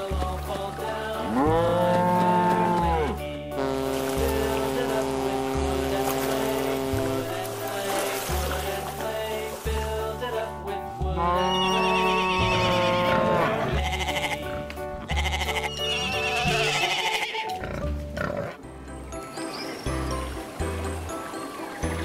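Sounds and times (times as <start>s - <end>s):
background music: 0.0s - 22.0s
farm animal calls: 11.2s - 14.5s, 15.1s - 18.6s.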